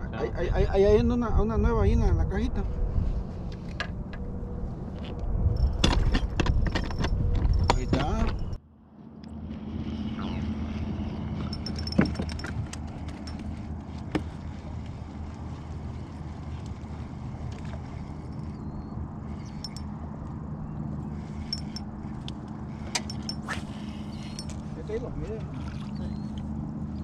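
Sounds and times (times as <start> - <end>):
boat motor humming: 7.5 - 27.0.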